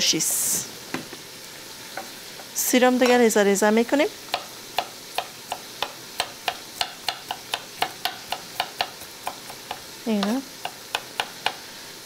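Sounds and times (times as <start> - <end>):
knife chopping on wooden board: 4.3 - 11.6.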